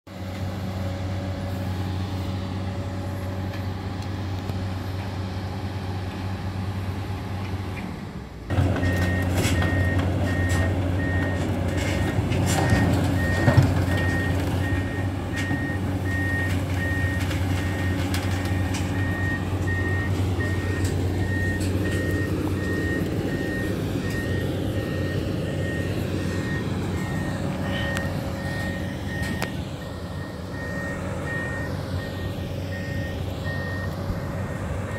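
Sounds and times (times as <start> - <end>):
excavator diesel engine running: 0.1 - 34.9
travel alarm beeping: 12.6 - 34.9.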